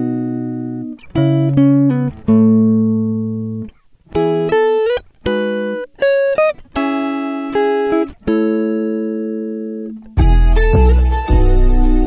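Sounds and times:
guitar chords plucked: 0:00.0 - 0:12.0.

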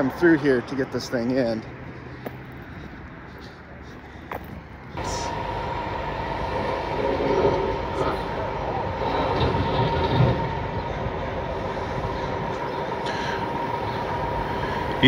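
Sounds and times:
diesel truck engine running: 0:00.0 - 0:15.0
steady high whine: 0:02.8 - 0:15.0.

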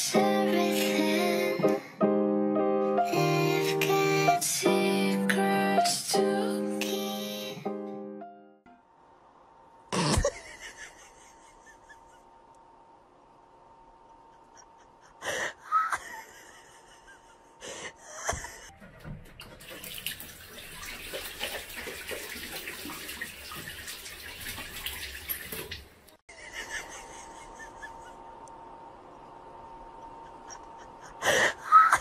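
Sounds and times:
tap running into washbasin: 0:18.8 - 0:25.9.

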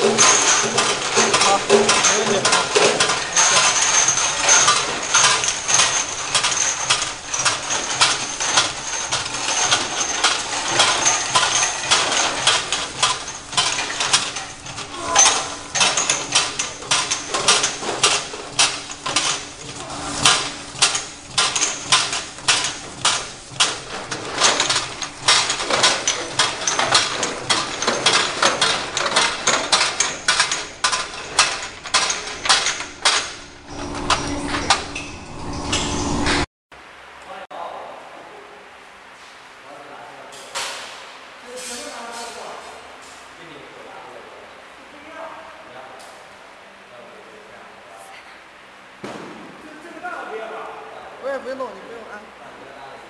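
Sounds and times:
bottles clinking on conveyor: 0:00.0 - 0:36.2.

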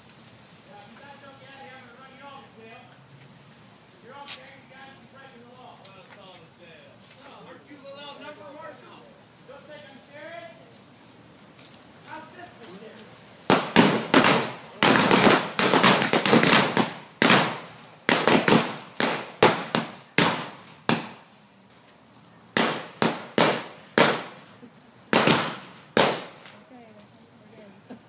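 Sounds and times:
blank gunshots with echo: 0:13.5 - 0:21.3, 0:22.6 - 0:24.5, 0:25.1 - 0:26.6.

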